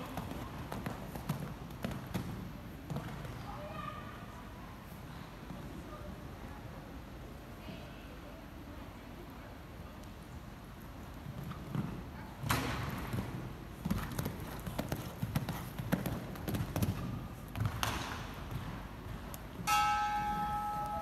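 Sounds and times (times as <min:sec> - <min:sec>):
horse hoofbeats on sand: 0:12.9 - 0:18.8.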